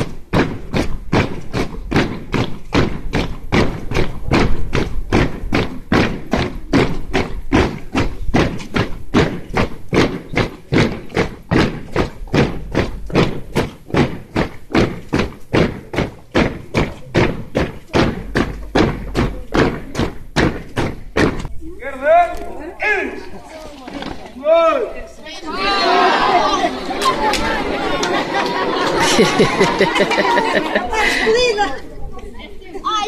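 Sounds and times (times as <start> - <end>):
spectators clapping in time: 27.0 - 31.2.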